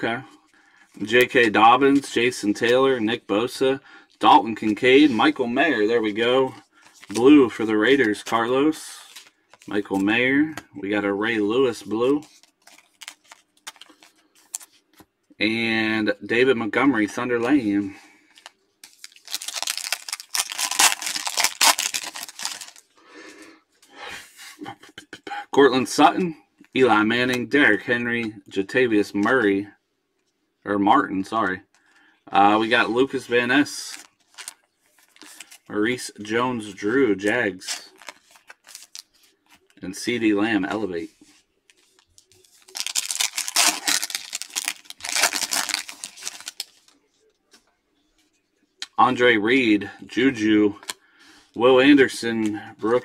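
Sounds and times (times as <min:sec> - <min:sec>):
foil wrapper crinkling and tearing: 0:12.4 - 0:14.7, 0:18.4 - 0:22.9, 0:33.8 - 0:35.6, 0:37.8 - 0:39.8, 0:41.9 - 0:47.0.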